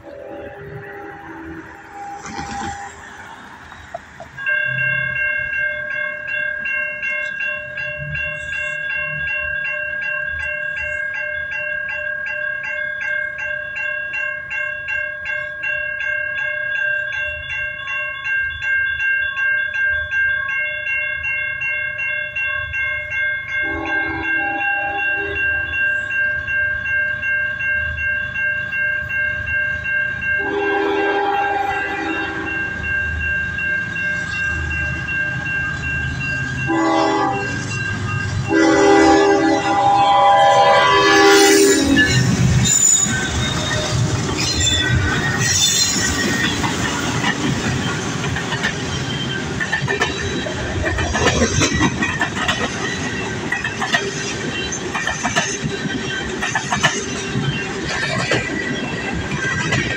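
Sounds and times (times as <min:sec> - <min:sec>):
train air horn: 0:00.0 - 0:03.0, 0:23.6 - 0:25.4, 0:30.4 - 0:32.6, 0:36.7 - 0:37.6, 0:38.5 - 0:42.1
low train rumble: 0:00.0 - 0:59.9
railroad crossing bell ringing: 0:00.0 - 0:59.9.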